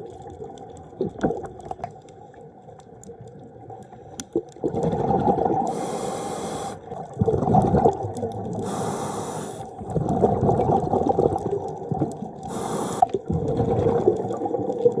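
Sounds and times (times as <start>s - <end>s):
bubbling exhale: 4.6s - 15.0s
regulator hissing inhale: 5.7s - 6.9s, 8.6s - 9.7s, 12.5s - 13.2s.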